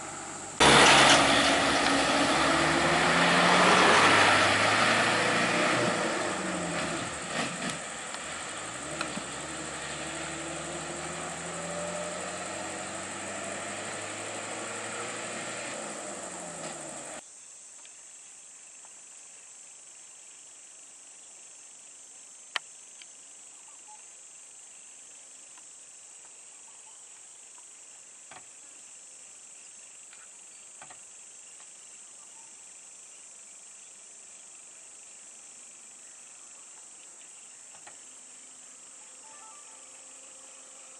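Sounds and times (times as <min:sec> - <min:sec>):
vehicle engine idling: 0:00.0 - 0:17.2
insects droning: 0:00.0 - 0:40.9.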